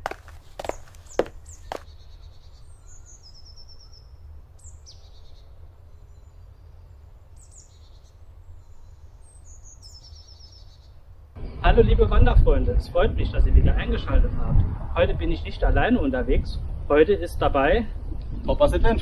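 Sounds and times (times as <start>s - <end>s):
footstep on gravel: 0.0s - 1.9s
songbirds singing: 0.0s - 11.9s.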